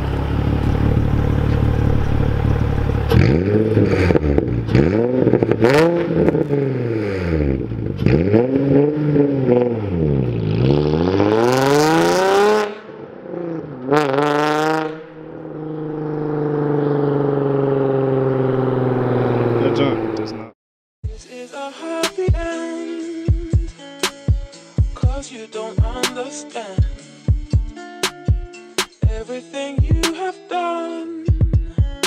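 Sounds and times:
car engine idling: 0.0 - 8.1, 15.0 - 20.5
car engine revving: 0.0 - 20.6.

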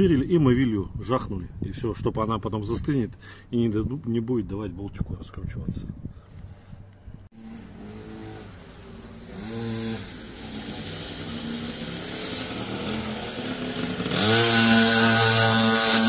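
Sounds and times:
small motorbike engine revving: 7.3 - 16.0.

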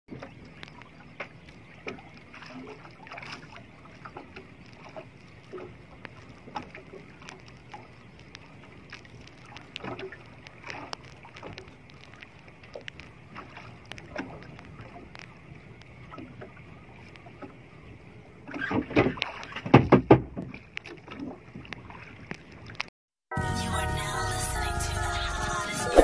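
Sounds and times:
water lapping against boat hull: 0.1 - 22.9
knocks on boat: 18.8 - 20.6.

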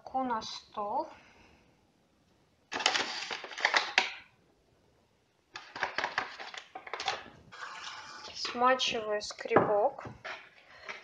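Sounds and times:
paper bag crinkling: 2.7 - 4.1, 5.6 - 8.5.

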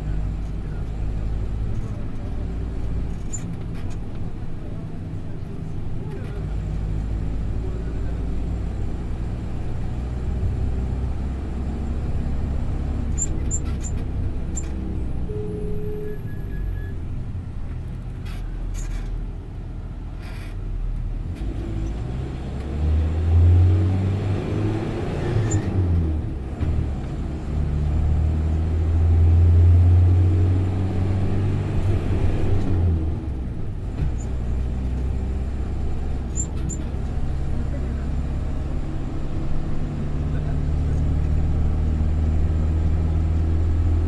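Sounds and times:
bus engine and tyre drone: 0.0 - 44.0.

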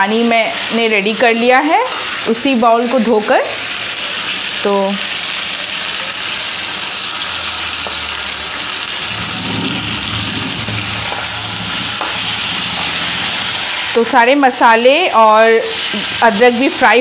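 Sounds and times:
fish sizzling in hot oil: 0.0 - 17.0
spatula stirring: 9.0 - 14.8.

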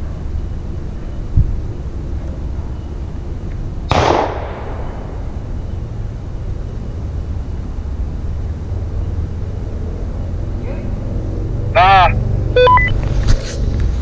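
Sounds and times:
steady low rumble: 0.0 - 13.0
shotgun shot: 3.9 - 5.2.

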